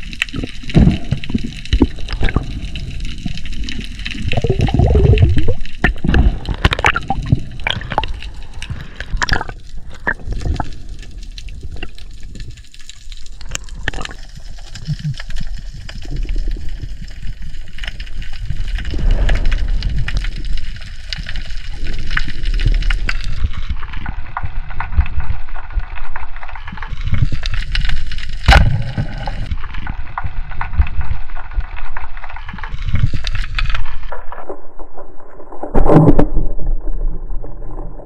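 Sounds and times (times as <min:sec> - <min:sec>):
rushing water: 0:00.0 - 0:25.5
crackling clicks underwater: 0:00.0 - 0:38.0.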